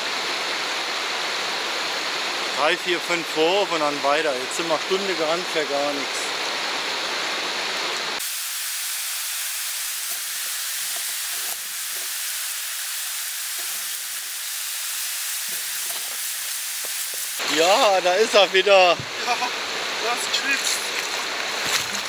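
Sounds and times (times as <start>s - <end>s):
water rushing over rocks: 10.1s - 22.0s
wading footsteps sloshing: 20.6s - 22.0s.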